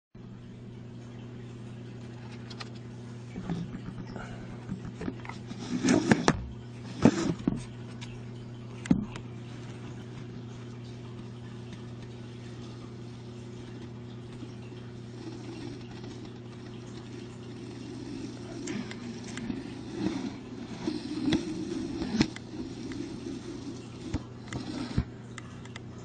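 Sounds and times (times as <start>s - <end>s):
steady low hum: 0.2s - 26.0s.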